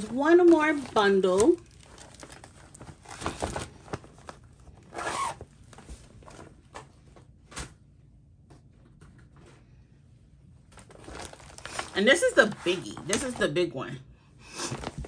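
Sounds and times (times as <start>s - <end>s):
packaging clicks and rustles: 0.0s - 6.9s, 10.7s - 13.4s
zipper rasp: 4.9s - 5.4s.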